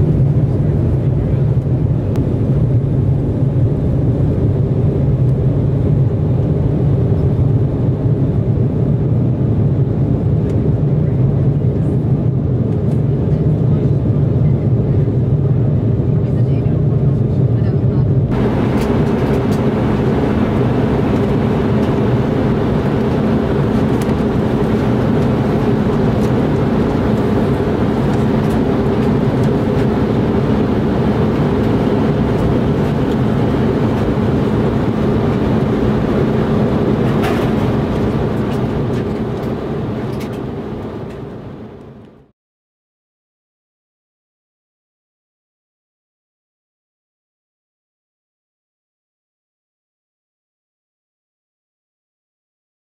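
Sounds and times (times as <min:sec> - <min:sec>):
jet airliner cabin noise: 0:00.0 - 0:42.3.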